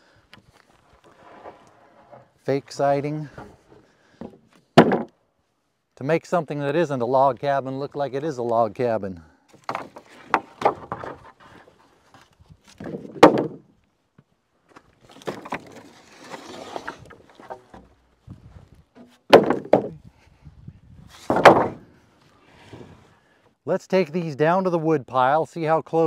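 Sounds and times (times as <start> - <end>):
boards scraping: 0.4 - 5.1, 9.5 - 13.7, 14.7 - 20.0, 21.0 - 23.3
wooden slabs knocking together: 4.2 - 5.1, 9.5 - 11.6, 12.7 - 13.7, 14.7 - 18.0, 19.0 - 20.0, 21.2 - 21.9
heavy wooden thumps: 4.2 - 5.2, 9.6 - 11.3, 12.8 - 13.7, 16.8 - 20.0, 21.2 - 21.9.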